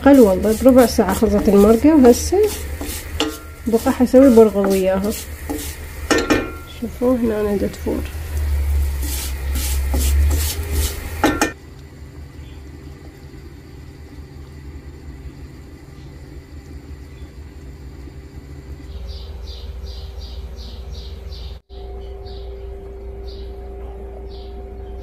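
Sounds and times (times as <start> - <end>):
scraping in a metal frying pan: 0.0 - 7.0, 8.1 - 11.6
food sizzling: 0.0 - 11.6
steady low hum: 0.0 - 25.0.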